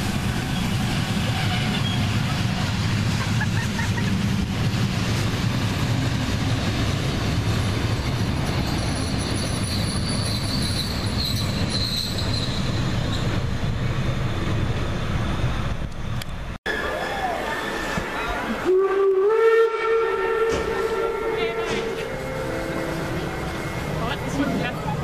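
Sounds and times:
train wheels rumbling on track: 0.0 - 25.0
high wheel squeal: 8.4 - 13.5.

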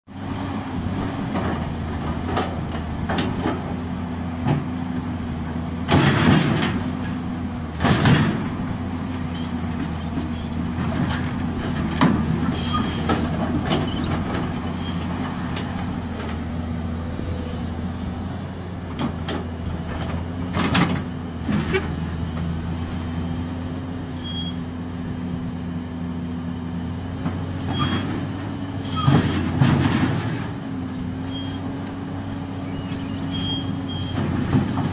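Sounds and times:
excavator diesel engine running: 0.1 - 34.9
metallic clanks of steel tracks: 27.2 - 30.6.

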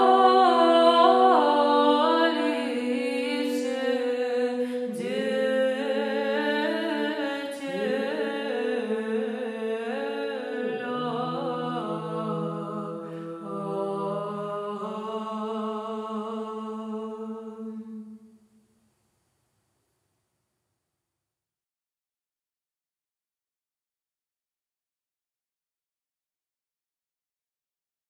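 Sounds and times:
women's choir chanting a cappella: 0.0 - 18.0
low held vocal drone: 0.0 - 18.2.

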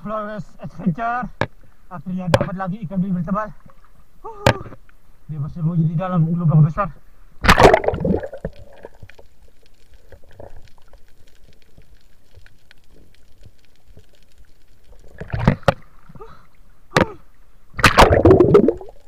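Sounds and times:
muffled gurgling: 5.6 - 9.0, 14.8 - 19.0
loud water splashing: 7.4 - 8.4, 17.8 - 19.0
faint crackling ticks: 8.4 - 16.3.

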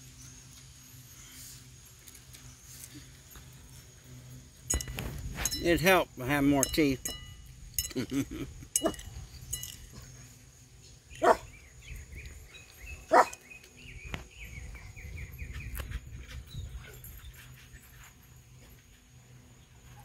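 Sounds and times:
dog barking: 11.2 - 11.5, 13.1 - 13.4.

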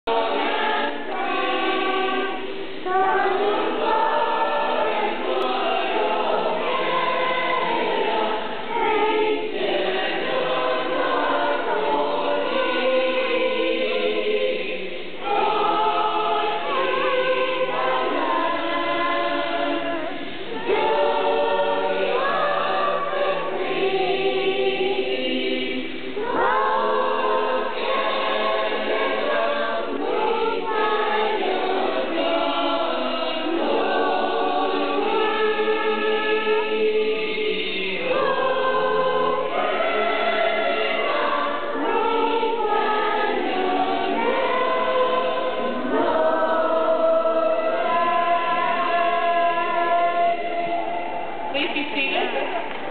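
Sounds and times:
crowd singing together: 0.0 - 52.9.

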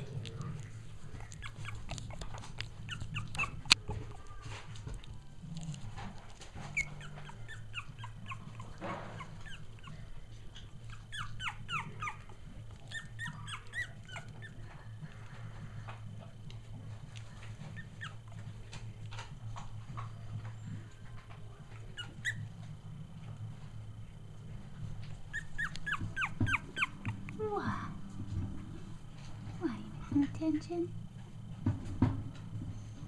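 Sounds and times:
puppies squeaking and whimpering: 0.0 - 5.0, 5.6 - 15.9, 17.2 - 22.8, 25.0 - 27.5
steady low hum: 0.0 - 33.0.

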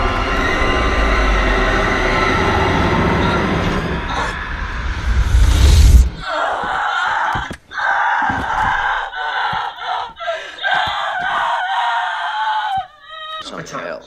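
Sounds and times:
loud low rumble: 0.0 - 6.2
young woman screaming and gasping: 6.2 - 13.4.

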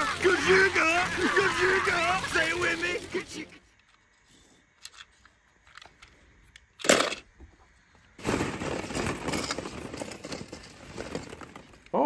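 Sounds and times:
plastic balls clattering: 6.8 - 7.3, 8.1 - 12.0.

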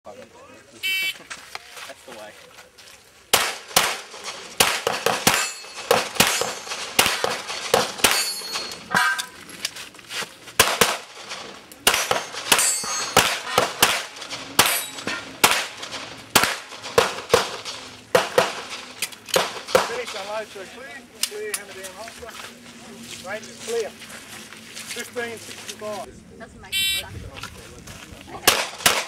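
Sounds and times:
pistol shots: 3.3 - 9.3, 10.6 - 20.2, 28.4 - 29.0
metallic ring: 5.2 - 9.4, 12.2 - 16.8.

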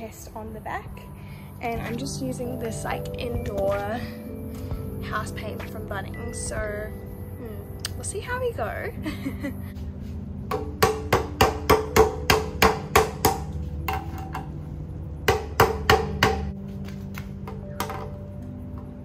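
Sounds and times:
hammer knocking on metal tin: 10.5 - 14.6.

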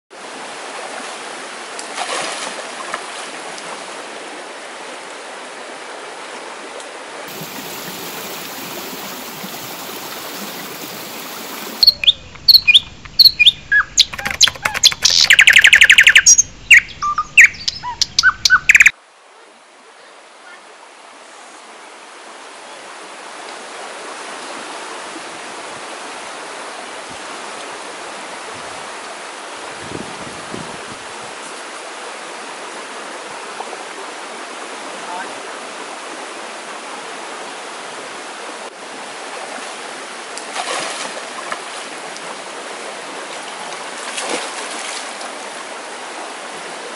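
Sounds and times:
flowing creek water: 0.1 - 46.9.

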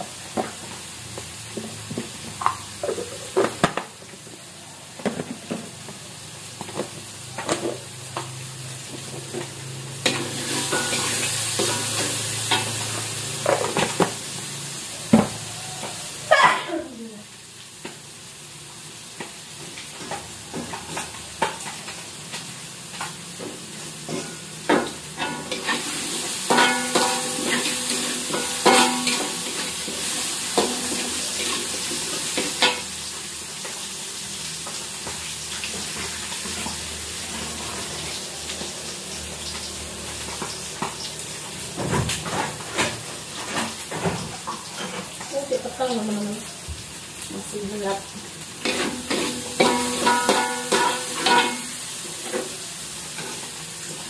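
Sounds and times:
food sizzling in a wok: 0.0 - 54.0
metal spatula scraping a pan: 25.2 - 32.8, 48.6 - 51.8.

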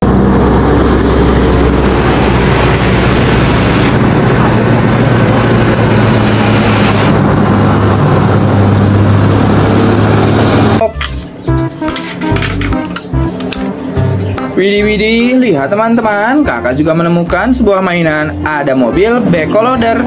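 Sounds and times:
motor scooters passing: 0.0 - 15.8
truck diesel engine droning: 0.0 - 15.9.

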